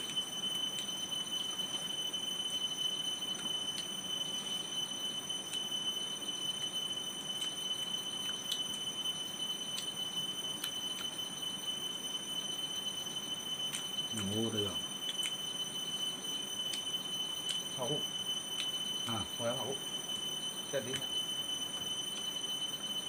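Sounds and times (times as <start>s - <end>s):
high-pitched whine: 0.0s - 23.0s.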